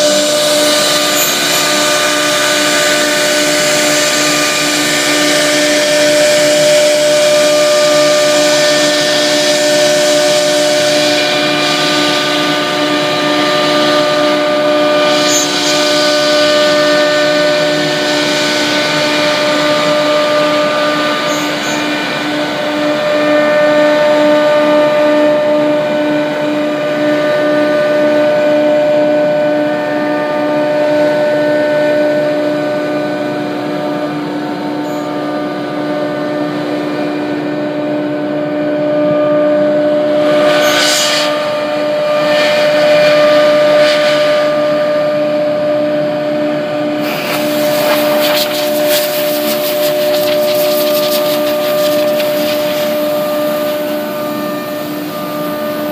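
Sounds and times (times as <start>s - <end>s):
router spindles whining: 0.0s - 25.2s, 46.8s - 55.9s
cutter and dust extraction hiss: 47.0s - 55.9s
harsh crackling cutting: 47.1s - 54.2s.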